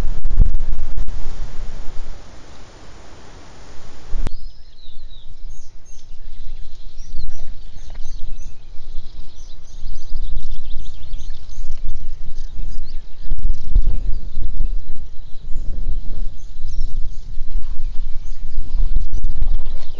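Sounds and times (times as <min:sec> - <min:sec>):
even hiss: 0:00.0 - 0:04.3
low fluctuating rumble: 0:00.0 - 0:04.3, 0:05.4 - 0:19.9
small birds chirping and singing: 0:04.1 - 0:19.9.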